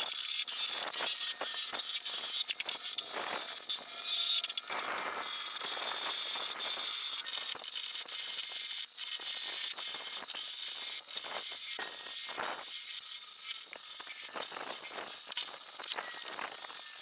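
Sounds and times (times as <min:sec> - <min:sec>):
high-pitched whine: 0:00.0 - 0:17.0.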